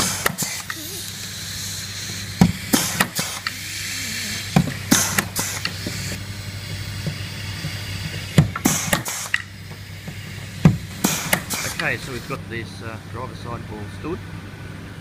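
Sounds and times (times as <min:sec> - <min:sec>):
rivet gun snap and air hiss: 0:00.0 - 0:01.2, 0:02.4 - 0:03.5, 0:04.6 - 0:06.2, 0:08.4 - 0:09.8, 0:10.7 - 0:12.0
steady low hum: 0:00.0 - 0:15.0.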